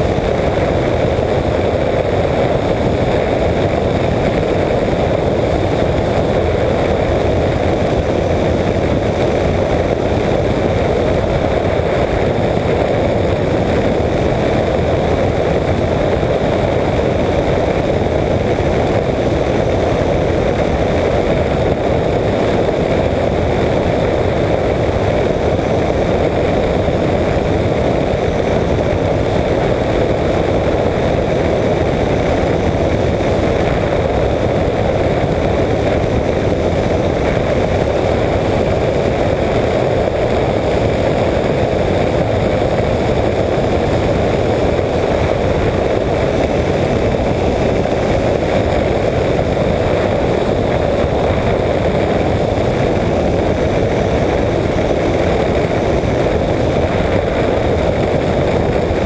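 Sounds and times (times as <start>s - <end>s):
engine and propeller running: 0.0s - 59.0s
rush of airflow: 0.0s - 59.0s.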